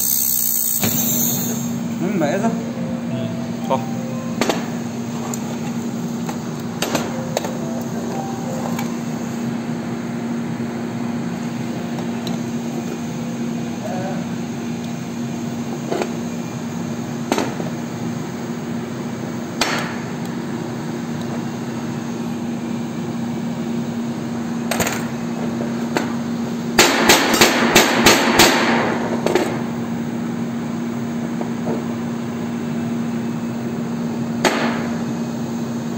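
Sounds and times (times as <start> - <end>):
machine hum: 0.0 - 15.4.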